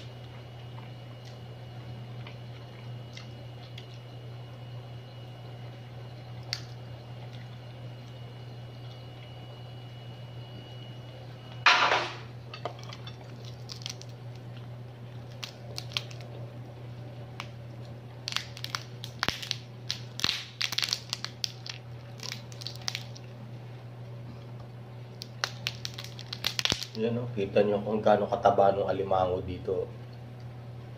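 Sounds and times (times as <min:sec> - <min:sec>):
steady low hum: 0:00.0 - 0:30.9
crab shell cracking: 0:06.4 - 0:06.8, 0:12.8 - 0:16.4, 0:17.3 - 0:23.4, 0:25.1 - 0:27.0.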